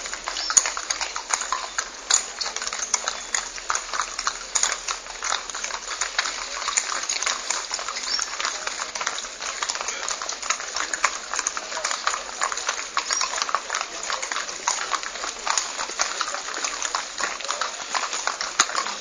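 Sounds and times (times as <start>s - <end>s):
hooves clip-clopping on stone: 0.0s - 19.0s.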